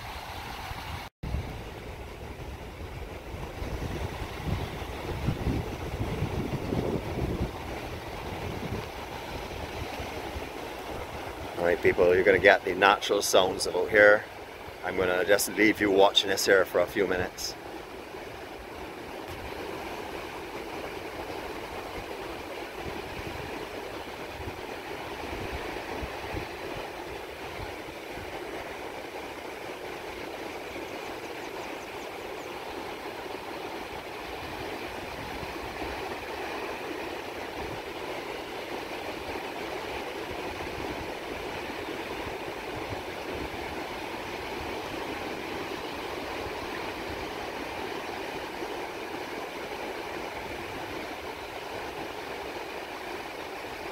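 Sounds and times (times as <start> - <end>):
surf breaking on shore: 0.0 - 31.3, 32.2 - 53.9
wind buffeting microphone: 0.1 - 12.6, 18.4 - 28.8.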